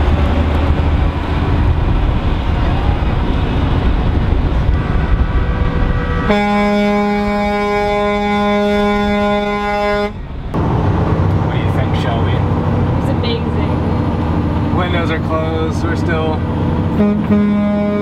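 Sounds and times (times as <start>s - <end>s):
truck engine and road rumble: 0.0s - 18.0s
truck air horn blast: 4.8s - 10.2s, 16.9s - 18.0s
faint horn tone: 17.0s - 18.0s.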